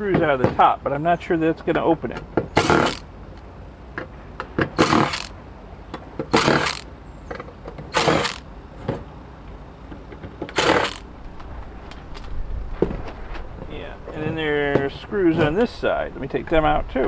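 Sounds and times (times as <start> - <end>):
cordless driver running: 2.6 - 3.4, 4.8 - 5.4, 6.3 - 6.9, 7.9 - 8.4, 10.5 - 11.1.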